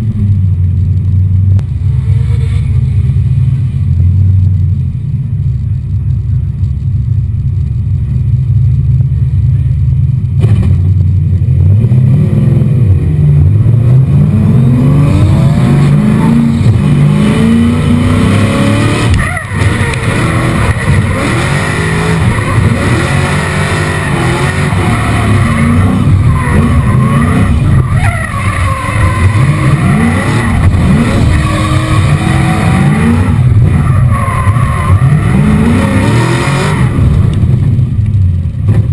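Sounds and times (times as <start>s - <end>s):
car engine revving: 0.0s - 38.9s
tyres skidding and screeching: 1.6s - 4.3s, 11.6s - 38.9s.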